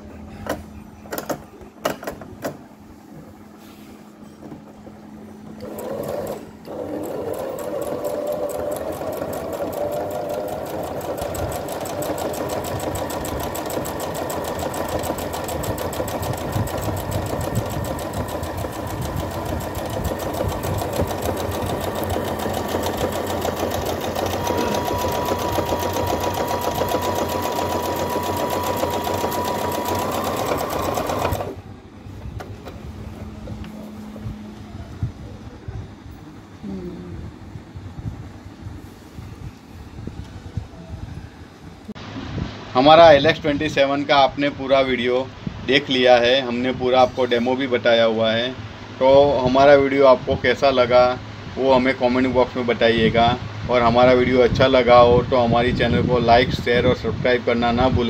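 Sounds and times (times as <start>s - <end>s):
sewing machine stitching: 5.6s - 31.6s.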